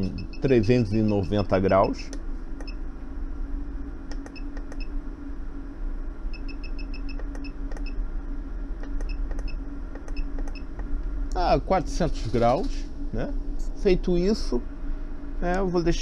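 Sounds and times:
short high electronic beeps: 0.0 - 1.9
steady low hum: 0.0 - 16.0.

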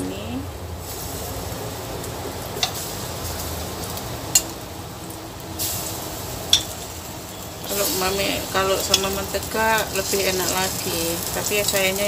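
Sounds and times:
bananas sizzling in oil: 0.0 - 12.0
tongs clicking against pan: 2.6 - 2.8, 4.3 - 4.6, 6.5 - 6.8, 8.6 - 11.0.

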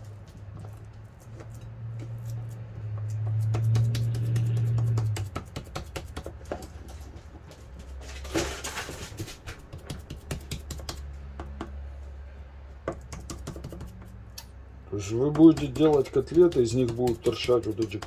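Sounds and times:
hands clicking and tapping: 2.9 - 6.8, 9.6 - 11.8, 12.9 - 14.5, 15.1 - 18.0.

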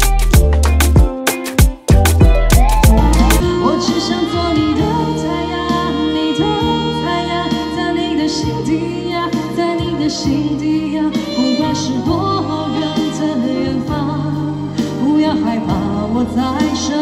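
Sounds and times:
drum-beat music: 0.0 - 6.8
electronic keyboard: 0.0 - 17.0
saxophone: 1.4 - 16.0
woman singing: 2.6 - 17.0.

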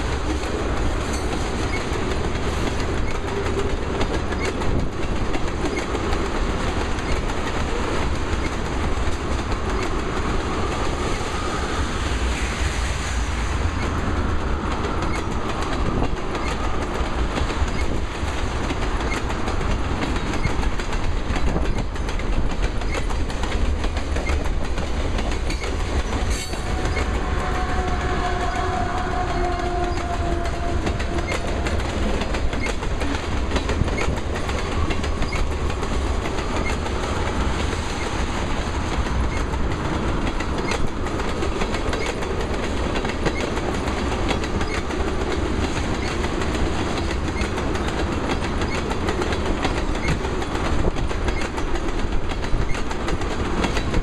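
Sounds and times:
wheels clacking on rail joints: 0.0 - 11.1, 14.7 - 54.0
low rumble of freight cars: 0.0 - 54.0.

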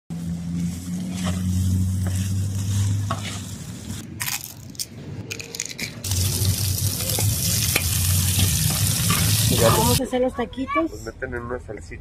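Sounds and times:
metal spatula scraping a griddle: 0.5 - 4.0
vegetables sizzling on a griddle: 6.1 - 10.0.

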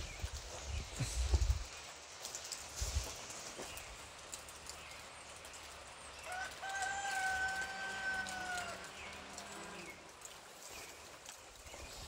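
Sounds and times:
rooster crowing: 6.3 - 9.8.

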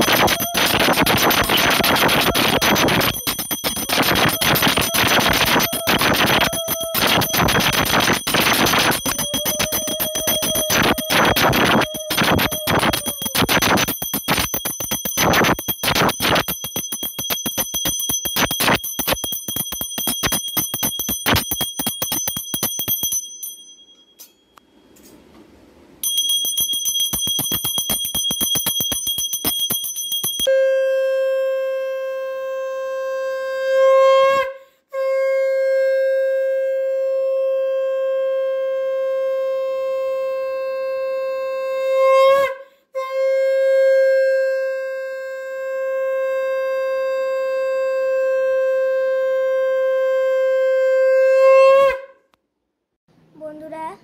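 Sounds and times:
conch shell blown: 0.0 - 14.4, 30.5 - 52.2
hand bell ringing rapidly: 0.0 - 24.0, 26.0 - 30.5.

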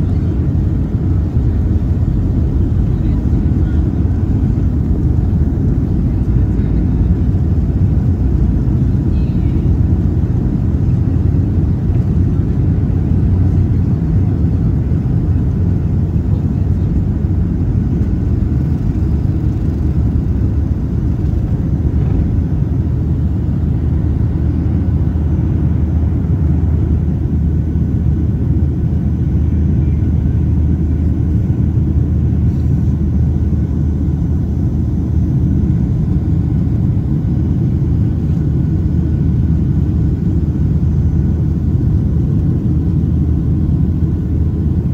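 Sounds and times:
jet engines low rumble in cabin: 0.0 - 44.9.

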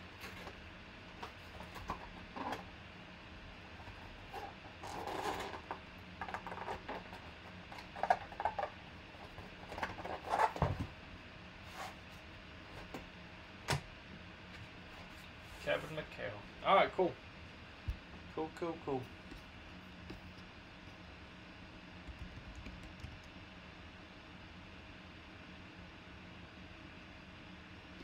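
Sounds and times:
cardboard rustling and scraping: 0.0 - 2.7, 3.7 - 11.0, 11.6 - 13.0.

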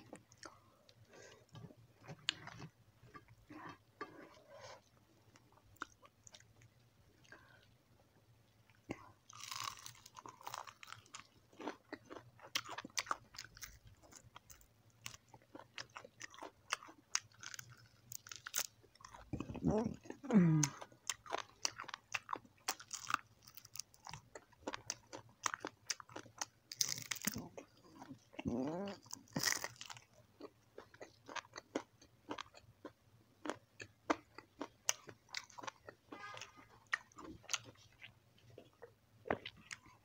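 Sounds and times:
crunchy chewing: 8.9 - 40.0.

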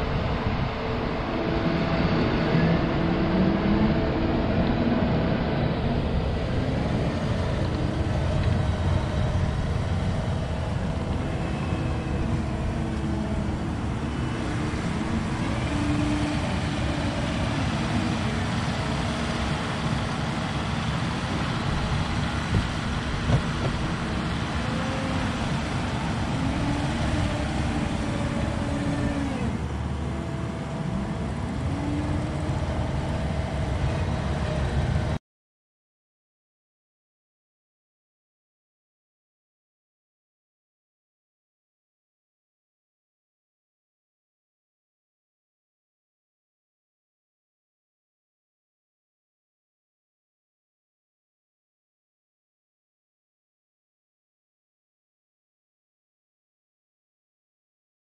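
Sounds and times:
diesel engine running: 0.0 - 35.2.

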